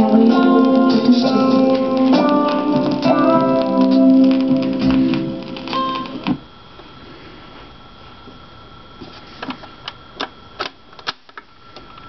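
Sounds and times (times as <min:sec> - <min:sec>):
sharp record clicks: 0:00.0 - 0:06.4
faint hum: 0:00.0 - 0:12.0
record player hiss: 0:00.0 - 0:12.0.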